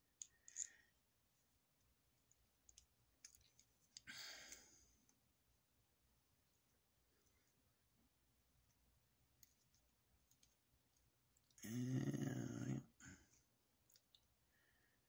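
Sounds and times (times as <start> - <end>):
small parts clicking: 0.1 - 1.0, 2.2 - 4.1, 9.4 - 11.6.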